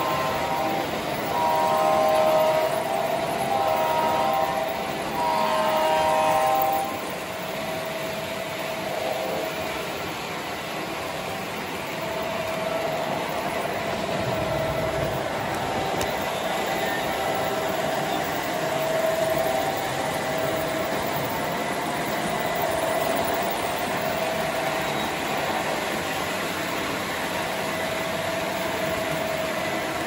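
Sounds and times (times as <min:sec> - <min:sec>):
model train horn blasts: 0:00.0 - 0:09.7, 0:12.0 - 0:26.2
model freight cars rolling and clicking: 0:00.0 - 0:30.0.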